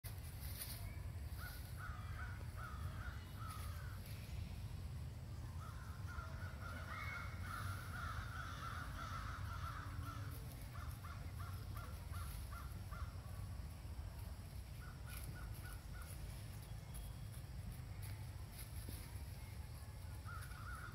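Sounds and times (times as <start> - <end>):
crows cawing: 1.4 - 4.1, 5.6 - 13.2, 20.3 - 20.9.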